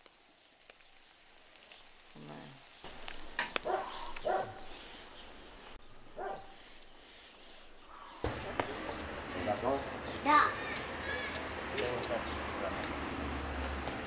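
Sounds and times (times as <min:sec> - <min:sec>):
dog barking: 0:03.6 - 0:04.8, 0:06.2 - 0:06.6.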